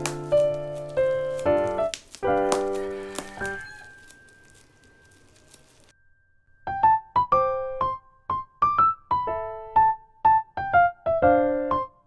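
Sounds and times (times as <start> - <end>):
faint crackling: 0.0 - 5.9.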